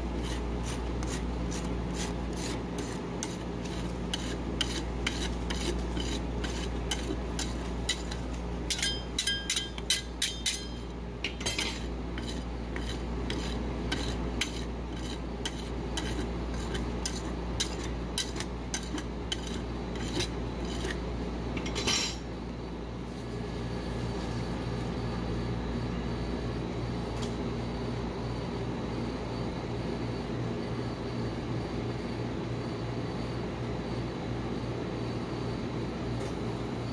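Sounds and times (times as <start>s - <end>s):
low machine hum: 0.0s - 36.9s
metal spatula scraping metal plate: 0.2s - 21.0s.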